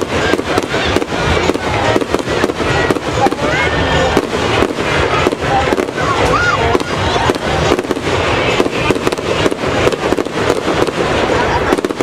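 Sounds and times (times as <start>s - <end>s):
fireworks bangs and crackles: 0.0s - 12.0s.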